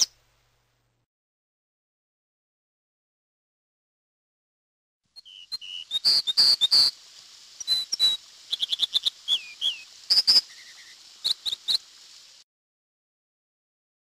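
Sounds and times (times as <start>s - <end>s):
steady hiss: 5.1s - 12.5s
bird singing whistled notes: 5.2s - 11.9s.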